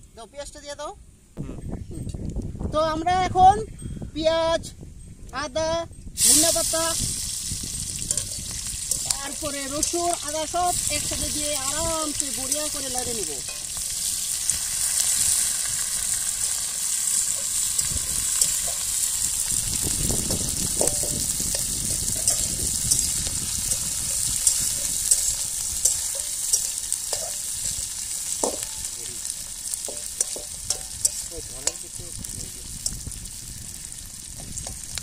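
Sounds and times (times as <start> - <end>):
vegetables sizzling in hot oil: 6.2 - 35.0
metal spatula scraping a pan: 8.0 - 11.8, 20.8 - 31.9.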